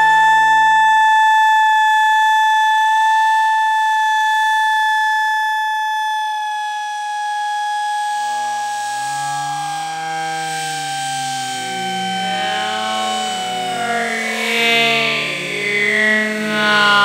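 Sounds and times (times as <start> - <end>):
low slowed-down voice sounds: 9.7 - 17.0
slowed-down yell high tone: 10.1 - 17.0.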